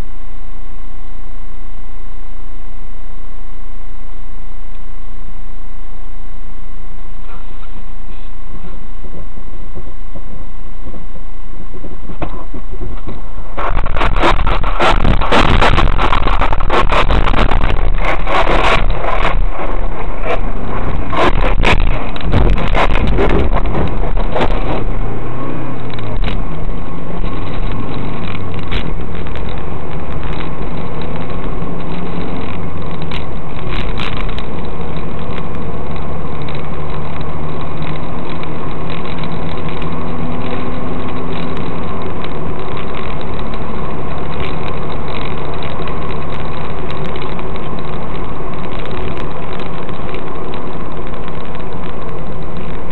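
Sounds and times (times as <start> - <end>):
car engine humming: 0.0 - 52.9
loud knocks and rattles: 13.6 - 25.1.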